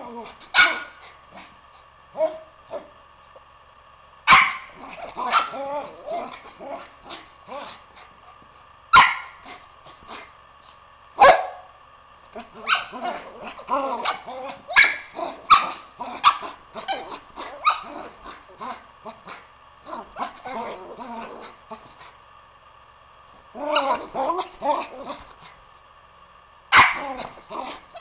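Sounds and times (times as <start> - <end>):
dogs barking and yipping: 0.5 - 1.2, 4.3 - 7.7, 8.9 - 9.6, 12.5 - 19.4, 26.7 - 28.0.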